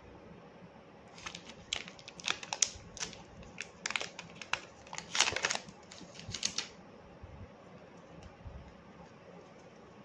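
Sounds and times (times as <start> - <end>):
cable clicking and rustling: 1.1 - 6.7.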